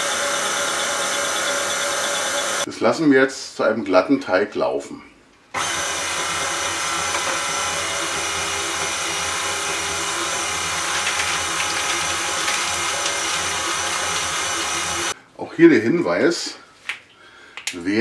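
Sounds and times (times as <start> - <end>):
stand mixer motor whine: 0.0 - 2.7, 5.6 - 15.2.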